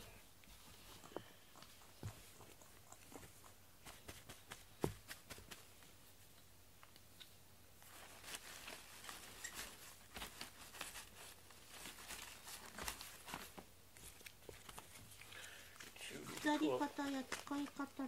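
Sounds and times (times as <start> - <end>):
plastic flowers rustling: 7.8 - 18.0.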